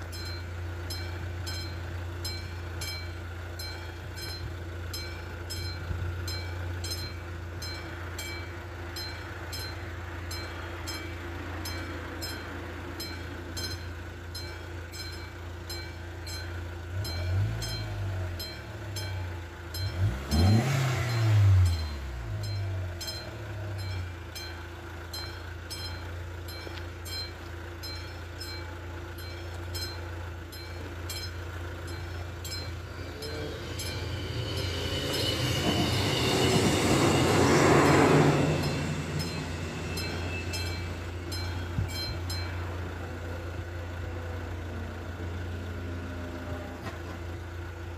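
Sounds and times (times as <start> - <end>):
level crossing bell: 0.0 - 36.7, 38.4 - 44.3
approaching train: 0.0 - 47.9
low hum: 20.9 - 47.8
vehicle driving past: 31.6 - 47.2
train wheels squealing: 31.9 - 42.8.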